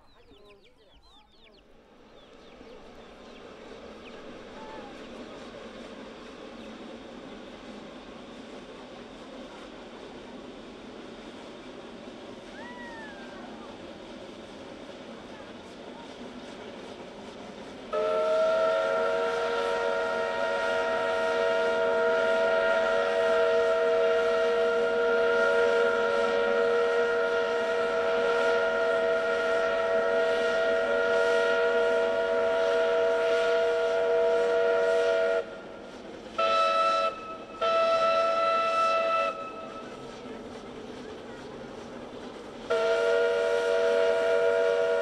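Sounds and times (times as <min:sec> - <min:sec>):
steam whistle blasts: 0:17.9 - 0:40.2, 0:42.3 - 0:45.0.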